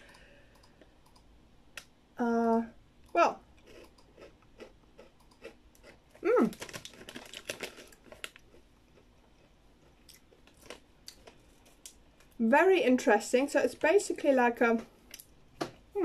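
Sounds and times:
crunchy chewing: 0:03.6 - 0:12.0
person humming: 0:06.2 - 0:06.6.

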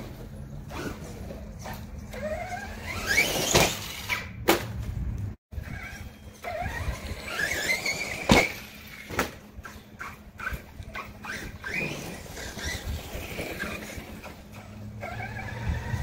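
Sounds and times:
electric motor whining: 0:05.6 - 0:09.1, 0:10.0 - 0:16.0.

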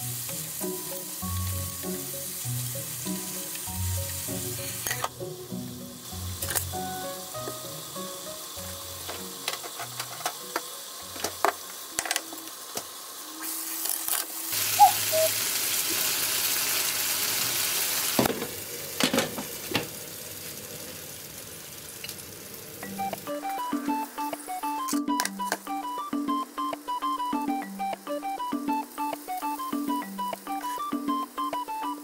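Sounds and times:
soft plucked background music: 0:00.0 - 0:13.4, 0:22.8 - 0:32.0
chicken sizzling in a frying pan: 0:00.0 - 0:32.0.

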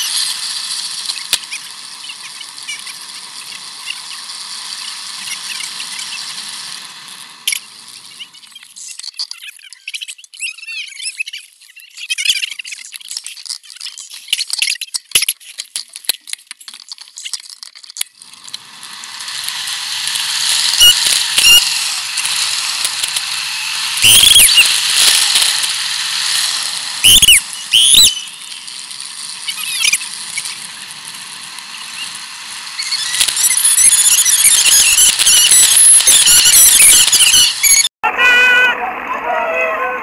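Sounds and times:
rushing wind and tyres: 0:00.0 - 0:08.8, 0:18.2 - 0:39.2
short high squeals: 0:18.9 - 0:30.7, 0:31.7 - 0:38.6
squeaks: 0:32.8 - 0:37.9.

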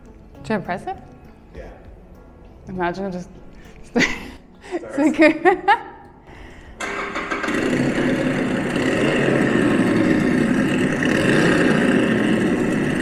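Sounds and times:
motorcycle engine from a speaker: 0:06.8 - 0:13.0.

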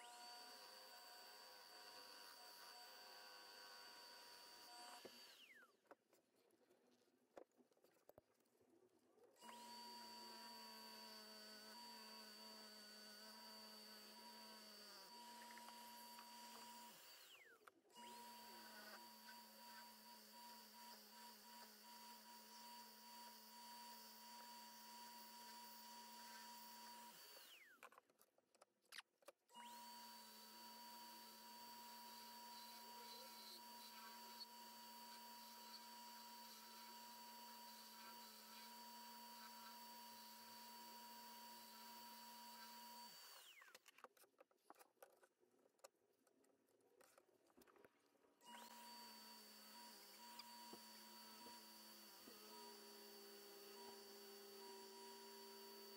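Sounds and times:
wood lathe electric whine: 0:00.0 - 0:05.6, 0:09.4 - 0:17.4, 0:18.0 - 0:27.7, 0:29.6 - 0:43.6, 0:48.5 - 0:55.9.

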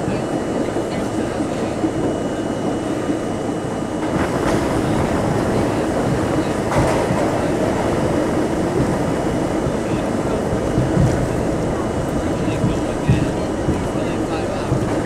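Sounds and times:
subway train rumbling in tunnel: 0:00.0 - 0:15.0
sharp knocks from train wheels: 0:06.1 - 0:09.7, 0:10.4 - 0:15.0.

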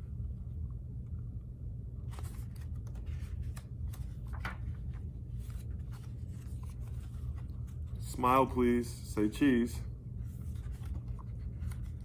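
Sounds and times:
steady low hum: 0:00.0 - 0:12.0
book pages turning: 0:02.0 - 0:08.8, 0:10.2 - 0:12.0.

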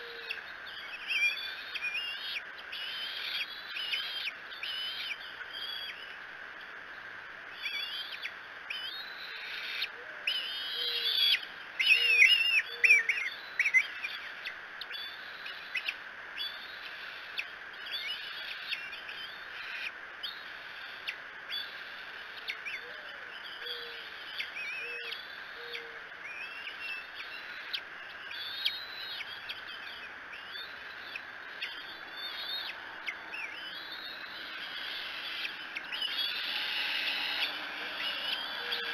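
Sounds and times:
dove cooing: 0:00.0 - 0:00.4, 0:24.8 - 0:26.0, 0:35.4 - 0:38.9
eagles whistling and chittering: 0:07.6 - 0:21.8, 0:22.4 - 0:38.9.

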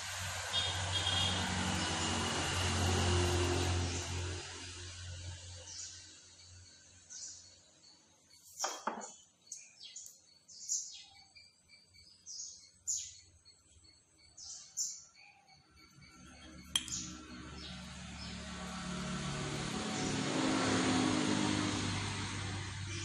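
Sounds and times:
passing vehicle engine rumble: 0:00.0 - 0:06.7, 0:16.1 - 0:23.0
small birds chirping: 0:05.2 - 0:18.7.

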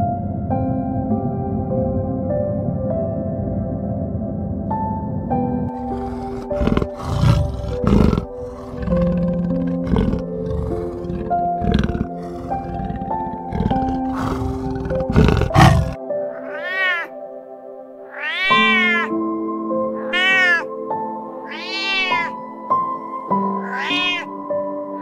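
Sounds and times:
soft background music: 0:00.0 - 0:25.0
low rough growls: 0:05.7 - 0:16.0
cat meowing: 0:15.6 - 0:17.1, 0:18.1 - 0:19.2, 0:20.0 - 0:20.7, 0:21.4 - 0:22.4, 0:23.5 - 0:24.4.

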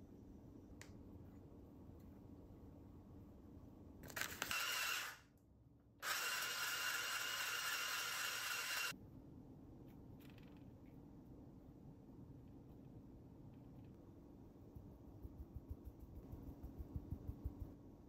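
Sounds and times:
electric ice shaver motor: 0:04.5 - 0:05.2, 0:06.0 - 0:08.9.

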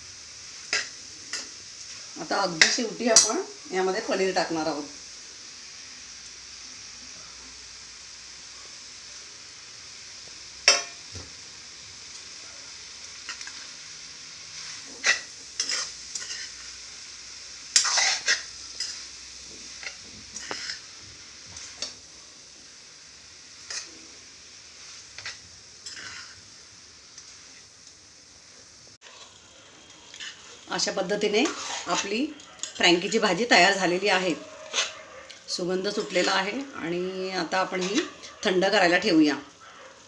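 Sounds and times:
vegetables sizzling in a pan: 0:00.0 - 0:40.0
spatula scraping a pan: 0:14.5 - 0:16.9, 0:17.6 - 0:22.0, 0:23.6 - 0:24.1, 0:24.7 - 0:26.4, 0:29.0 - 0:36.7, 0:37.5 - 0:40.0.

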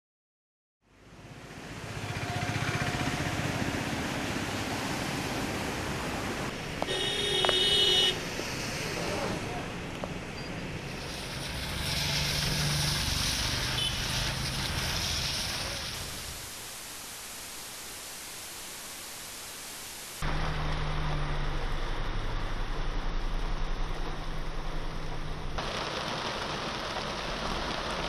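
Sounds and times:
passing vehicle engines: 0:01.1 - 0:16.0
tyres hissing on wet road: 0:01.2 - 0:28.0
car horn: 0:06.8 - 0:08.2, 0:13.7 - 0:14.2.

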